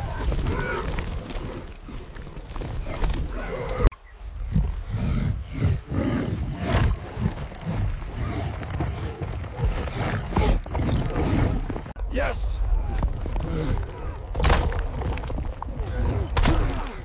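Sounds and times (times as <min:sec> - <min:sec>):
animal grunts and roars: 0:00.0 - 0:12.0, 0:12.6 - 0:17.0
running hooves thudding: 0:00.0 - 0:12.0.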